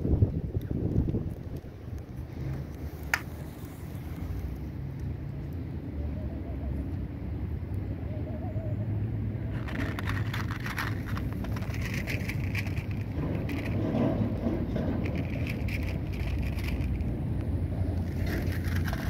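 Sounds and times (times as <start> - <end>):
crunching and crackling: 9.5 - 19.0.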